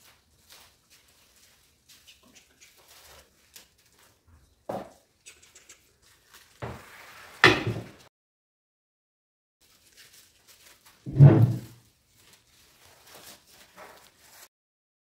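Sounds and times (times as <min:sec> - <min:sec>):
pot scraping on wooden table: 0:11.1 - 0:11.8.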